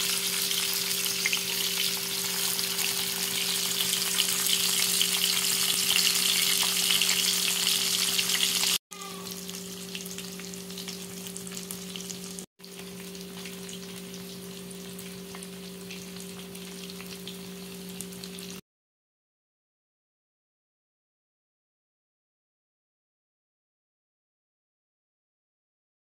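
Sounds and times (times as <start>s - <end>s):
fish sizzling in oil: 0.0s - 18.6s.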